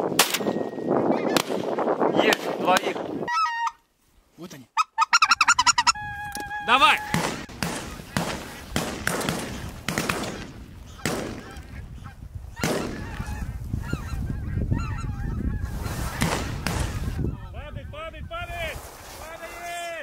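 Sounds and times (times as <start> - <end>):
geese honking: 3.2 - 3.9, 4.8 - 8.8, 10.1 - 18.0.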